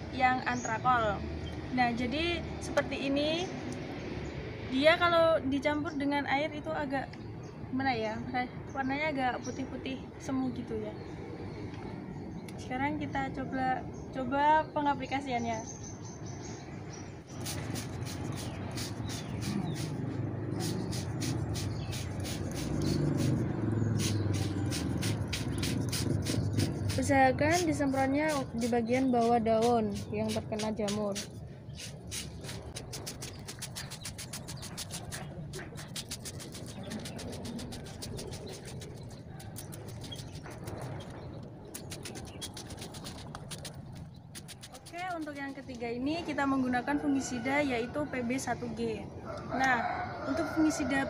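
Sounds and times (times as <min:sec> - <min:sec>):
spray bottle spritzing: 0:17.3 - 0:41.1, 0:41.7 - 0:45.6.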